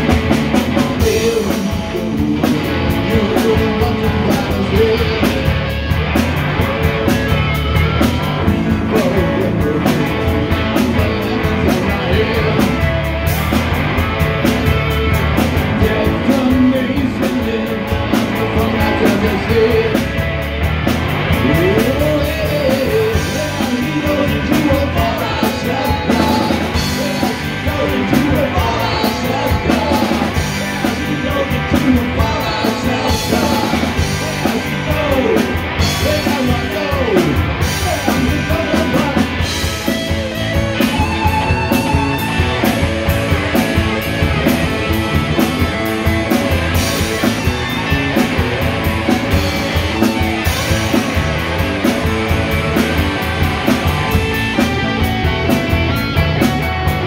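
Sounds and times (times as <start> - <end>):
drum kit: 0.0 - 57.0
electric bass: 0.0 - 57.0
electric guitars: 0.0 - 57.0
person singing: 0.5 - 5.6, 7.2 - 13.0, 15.6 - 20.2, 21.3 - 43.8.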